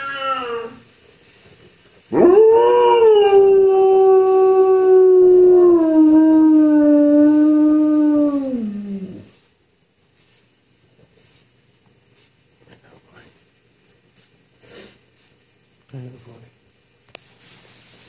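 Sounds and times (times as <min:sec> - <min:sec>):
dog howling: 0:02.1 - 0:09.3.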